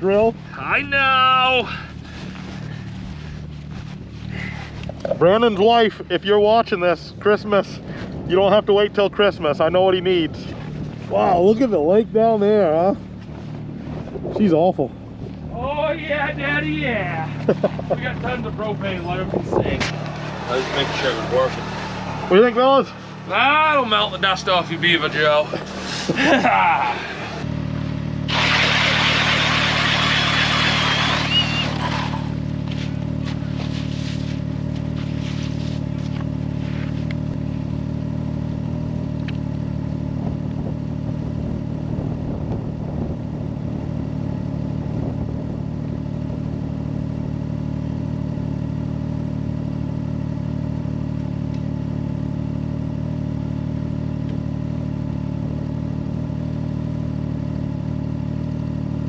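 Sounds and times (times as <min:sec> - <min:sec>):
motor droning: 0:17.3 - 0:38.0
loud rushing hiss: 0:28.3 - 0:31.8.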